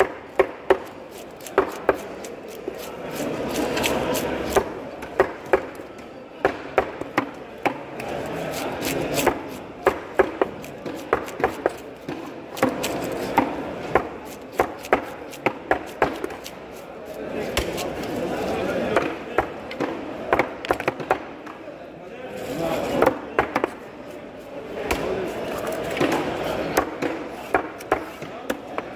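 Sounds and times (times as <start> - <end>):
knife chopping on cutting board: 0.0 - 2.2, 6.4 - 16.6, 17.4 - 18.2, 25.8 - 28.9.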